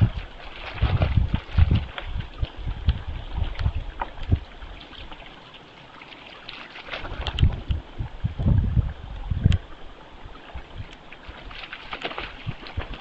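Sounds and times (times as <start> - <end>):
deer splashing through water: 0.0 - 7.7, 11.1 - 13.0.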